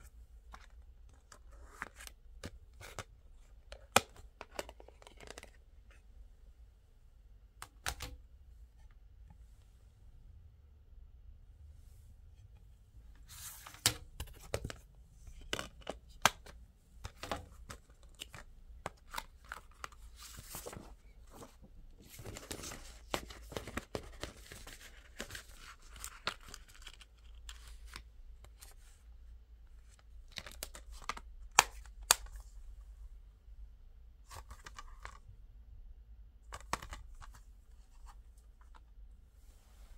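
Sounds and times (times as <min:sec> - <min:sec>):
paper rustling: 0:17.7 - 0:27.1.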